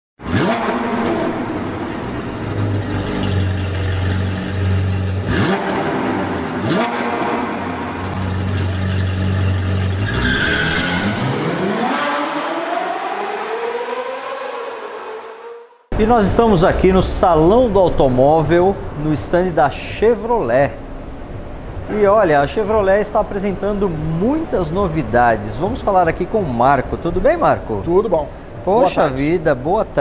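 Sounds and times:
sports car engine revving: 0:00.2 - 0:19.0.

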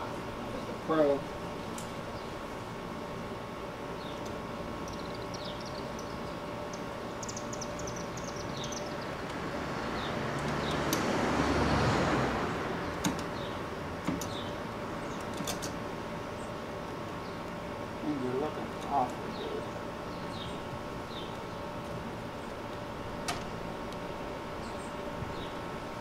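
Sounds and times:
birds chirping: 0:00.0 - 0:11.0, 0:12.6 - 0:26.0
passing vehicle: 0:09.4 - 0:13.6.

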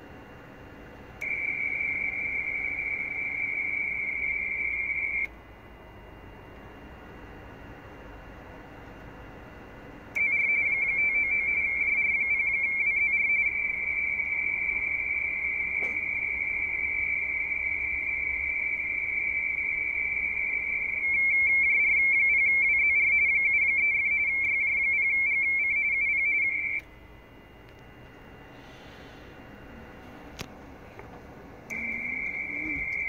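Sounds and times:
radioteletype two-tone warble: 0:01.2 - 0:05.3, 0:10.2 - 0:30.4, 0:31.7 - 0:33.0.

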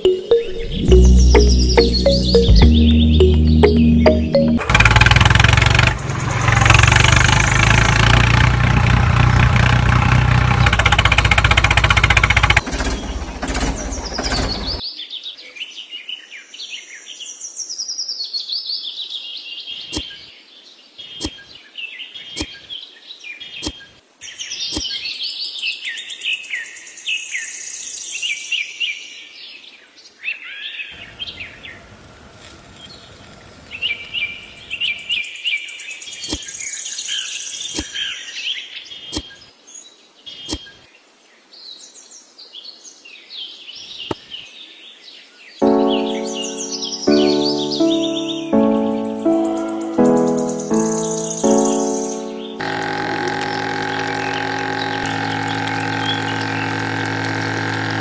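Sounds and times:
songbirds chirping: 0:00.0 - 0:04.7, 0:12.6 - 0:57.9
loud noise with deep hum: 0:52.6 - 0:58.0.

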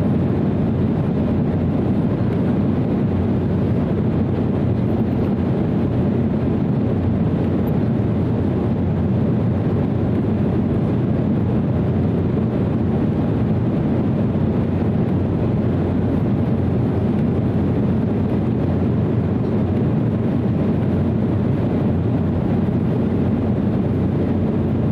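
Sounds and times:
airflow over fuselage: 0:00.0 - 0:24.9
airliner cabin engine drone: 0:00.0 - 0:24.9.

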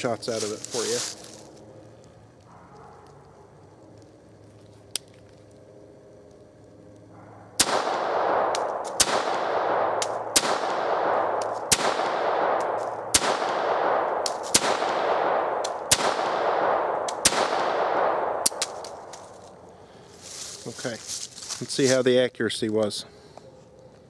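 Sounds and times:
gunshot echo off woods: 0:07.6 - 0:19.0
pistol shots: 0:07.6 - 0:19.2.

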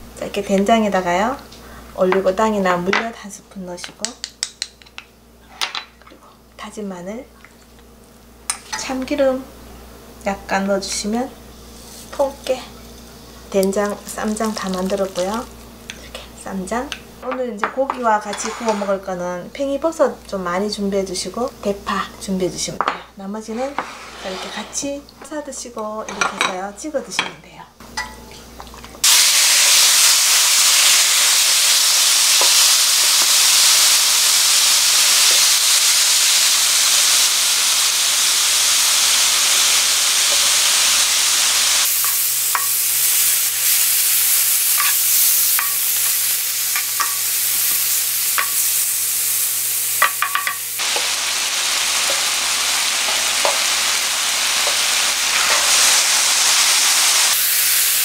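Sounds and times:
meat sizzling on a griddle: 0:29.0 - 0:58.0
utensils clicking on a griddle: 0:44.7 - 0:47.3.

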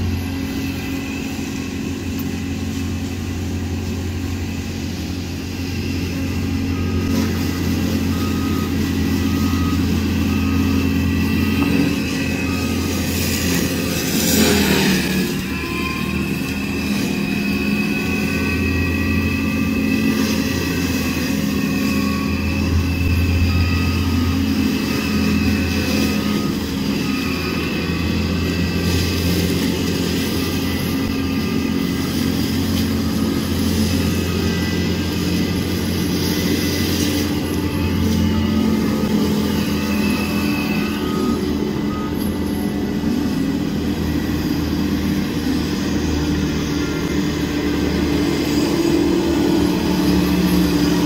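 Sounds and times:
diesel engine running hard: 0:00.0 - 0:51.0
mulcher head whining: 0:00.0 - 0:51.0.

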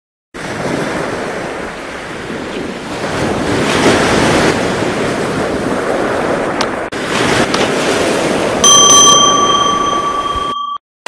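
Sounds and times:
wind: 0:00.4 - 0:10.8.

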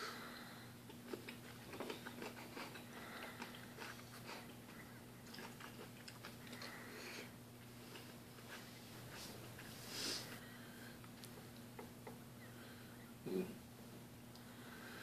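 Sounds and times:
faint low hum: 0:00.0 - 0:15.0
person chewing food: 0:00.8 - 0:09.7.

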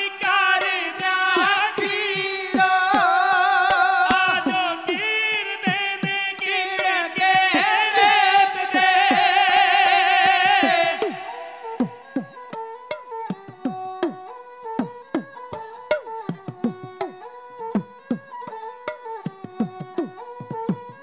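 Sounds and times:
voices singing with vibrato: 0:00.0 - 0:12.6
bowed sarangi: 0:00.0 - 0:21.0.

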